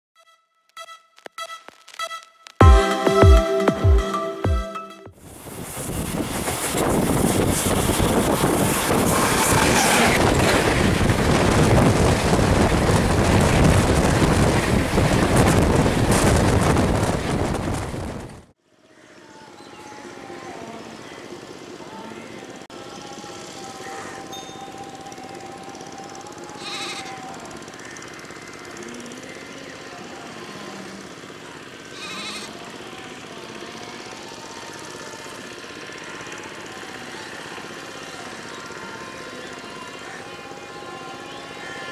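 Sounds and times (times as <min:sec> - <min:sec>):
train rushing past: 0:05.1 - 0:18.5
wind buffeting microphone: 0:05.2 - 0:18.5.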